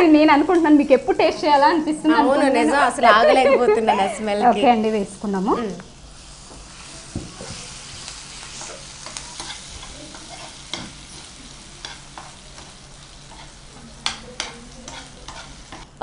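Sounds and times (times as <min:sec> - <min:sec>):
oil sizzling in pan: 0:04.6 - 0:16.0
spoon scraping and tapping pan: 0:09.0 - 0:11.0, 0:13.3 - 0:15.9.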